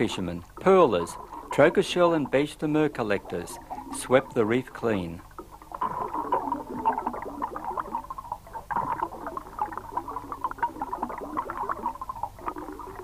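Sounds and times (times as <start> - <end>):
dense clicking and popping: 0.0 - 13.0
underwater bubbles: 0.0 - 13.0.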